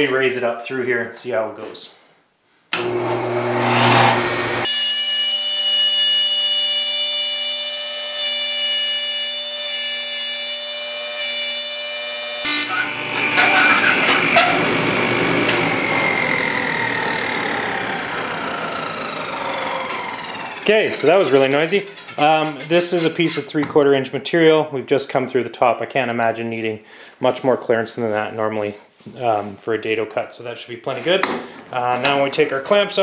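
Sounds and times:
table saw blade whine: 2.8s - 22.7s.

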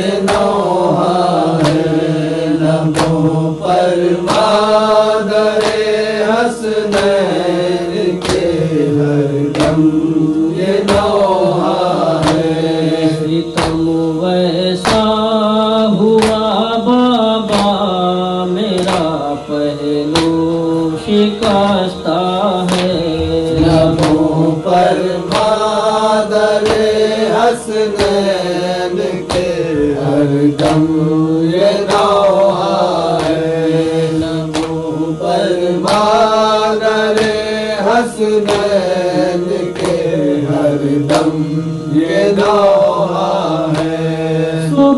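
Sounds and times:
voices singing a lament: 0.0s - 44.9s
steady percussive beat: 9.5s - 13.0s, 22.6s - 27.1s, 29.3s - 35.0s.

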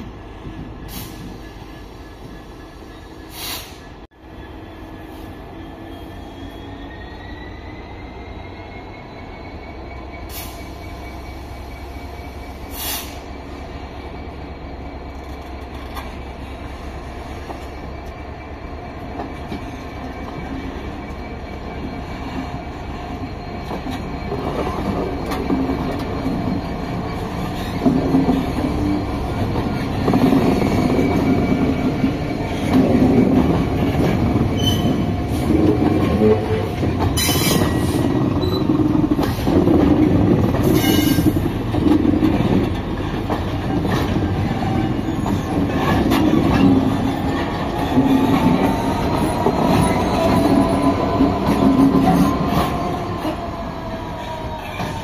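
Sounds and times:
diesel locomotive engines: 0.0s - 55.0s
high wheel squeal: 1.0s - 15.4s, 19.6s - 39.6s, 40.6s - 41.6s, 43.7s - 55.0s
train wheels clacking on rails: 17.4s - 55.0s.

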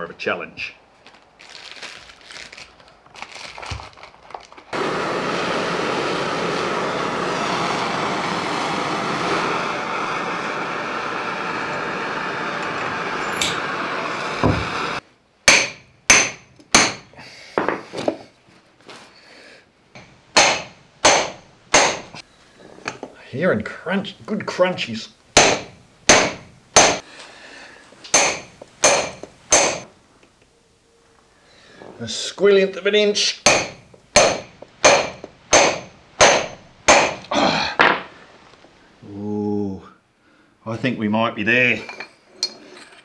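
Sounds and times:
blowtorch hissing: 4.7s - 15.0s
sharp metallic clanks: 28.1s - 29.9s.

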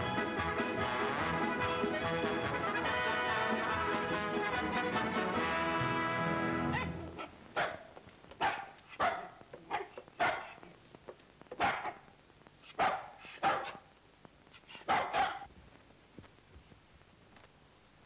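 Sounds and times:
orchestral music: 0.0s - 6.7s
small dog barking: 6.6s - 10.7s, 11.5s - 13.9s, 14.5s - 15.5s.

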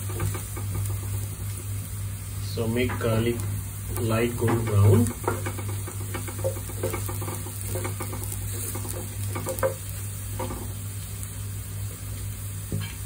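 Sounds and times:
garlic sizzling in oil: 0.0s - 13.0s
steady low hum: 0.0s - 13.0s
wooden spatula scraping a pan: 4.4s - 10.8s.

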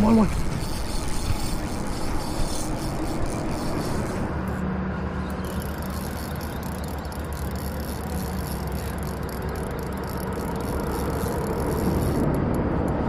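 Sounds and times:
fishing reel clicking rattle: 0.0s - 4.6s, 5.2s - 12.4s.

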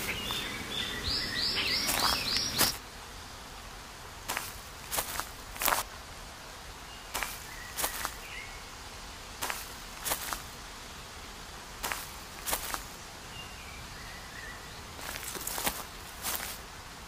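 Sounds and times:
faint bird chirps: 0.0s - 2.8s
footsteps swishing through dry grass: 1.5s - 2.8s, 4.2s - 5.9s, 7.1s - 8.4s, 9.4s - 10.6s, 11.8s - 13.0s, 15.0s - 16.7s.

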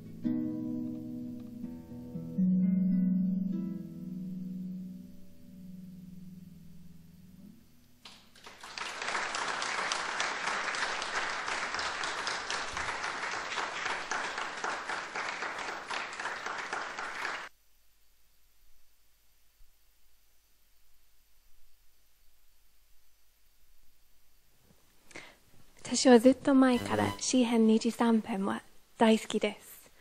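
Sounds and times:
audience applauding: 8.0s - 17.5s
harp notes: 26.7s - 27.4s.

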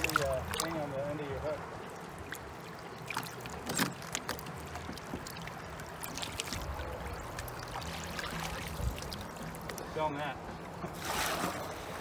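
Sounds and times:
small water splashes: 0.0s - 10.0s, 10.9s - 12.0s
river water sloshing and trickling: 0.0s - 12.0s.

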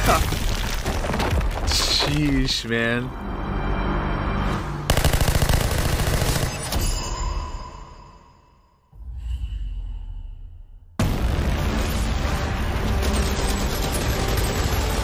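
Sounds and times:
rapid automatic gunfire: 4.9s - 6.7s.

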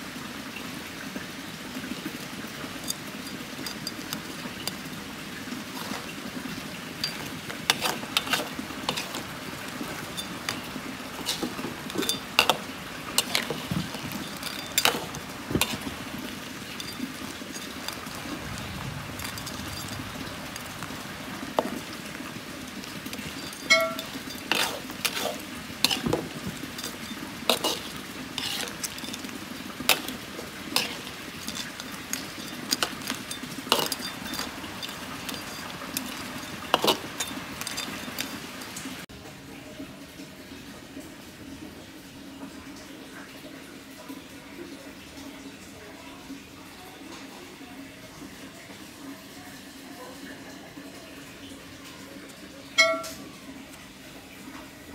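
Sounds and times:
gravy bubbling: 1.9s - 39.0s
spatula scraping against wok: 5.6s - 6.2s, 7.0s - 20.8s, 23.1s - 38.8s.

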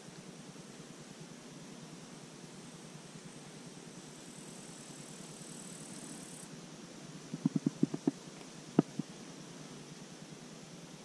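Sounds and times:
faint outdoor hiss: 0.0s - 11.0s.

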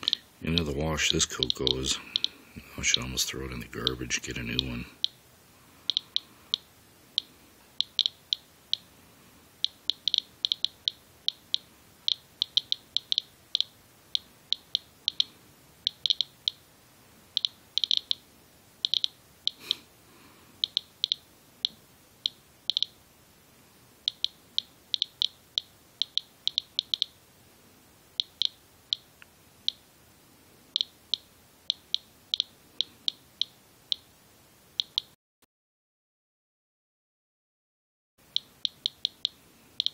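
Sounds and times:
geiger counter ticks: 0.0s - 5.2s, 5.8s - 8.9s, 9.6s - 16.6s, 17.3s - 19.6s, 20.6s - 23.0s, 24.0s - 27.2s, 28.1s - 29.8s, 30.7s - 34.1s, 34.8s - 35.2s, 38.2s - 39.9s.

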